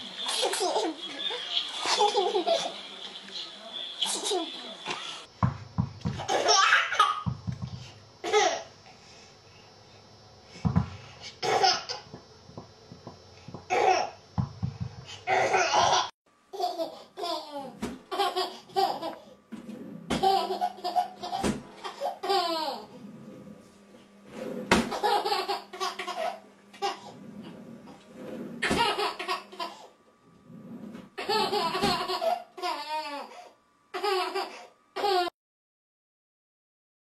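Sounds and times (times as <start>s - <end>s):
baby laughing: 0.2s - 2.8s, 6.2s - 7.2s, 15.3s - 19.2s, 20.1s - 23.0s, 24.9s - 27.0s, 28.6s - 29.9s, 31.2s - 33.3s, 34.0s - 35.3s.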